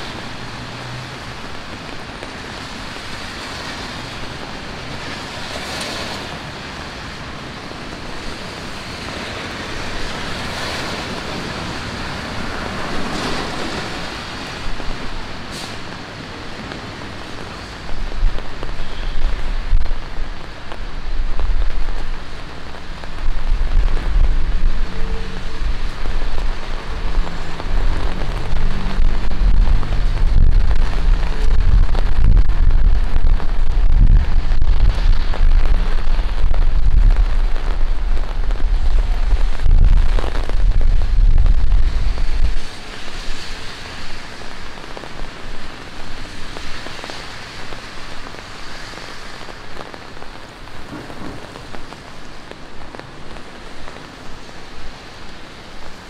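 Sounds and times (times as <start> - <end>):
rain falling on street: 0.0 - 56.0
loud deep rumble: 23.0 - 42.7.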